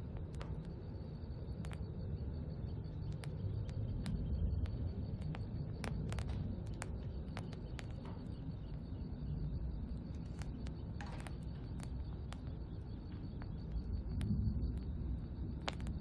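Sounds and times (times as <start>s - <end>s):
faint chirps: 0.0s - 16.0s
sharp ticks: 3.0s - 16.0s.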